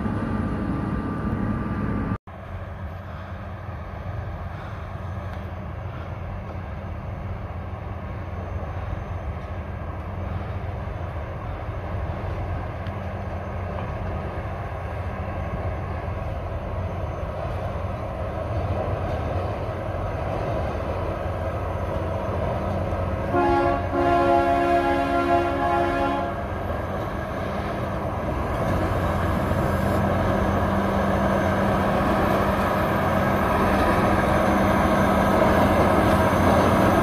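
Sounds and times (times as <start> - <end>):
train rumbling: 0.0 - 37.0
two-tone train horn: 23.2 - 26.5.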